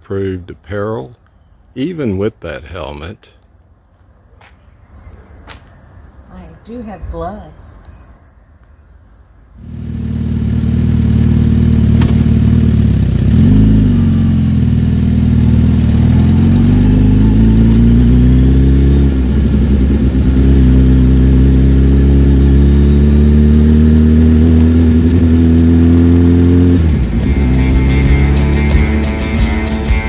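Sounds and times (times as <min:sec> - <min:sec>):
motorcycle engine revving: 0:09.6 - 0:30.0.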